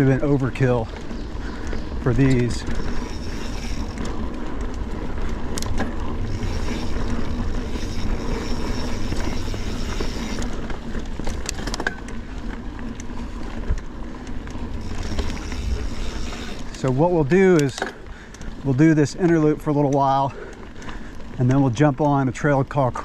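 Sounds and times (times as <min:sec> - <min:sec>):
wind buffeting microphone: 0:00.0 - 0:11.6, 0:14.5 - 0:18.8
bike clicks and rattles: 0:00.0 - 0:23.0
bike tyres on dirt trail: 0:00.0 - 0:23.0.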